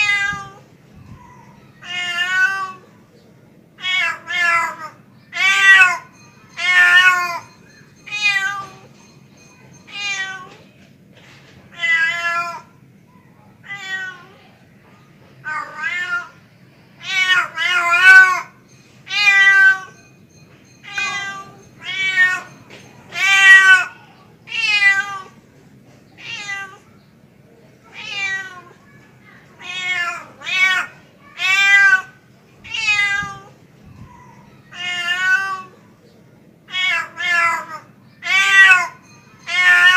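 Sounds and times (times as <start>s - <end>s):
cat meowing: 0.0s - 2.8s, 3.8s - 7.5s, 11.7s - 12.7s, 13.6s - 14.4s, 15.4s - 16.4s, 17.0s - 18.5s, 23.1s - 25.4s, 26.2s - 26.8s, 27.9s - 28.8s, 29.6s - 33.6s, 34.3s - 35.7s, 36.7s - 39.9s.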